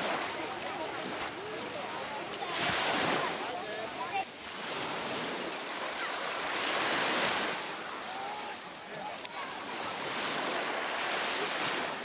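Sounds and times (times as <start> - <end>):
faint voices of people: 0.0 - 11.7
sea waves washing onto beach: 0.0 - 12.0.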